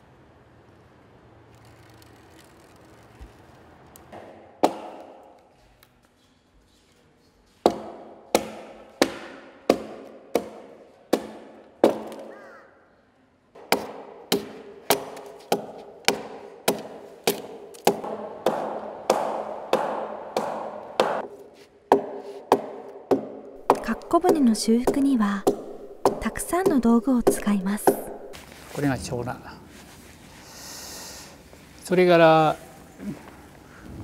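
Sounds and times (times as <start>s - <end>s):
axe chopping wood: 4.1s - 5.3s, 7.6s - 12.3s, 13.6s - 28.4s.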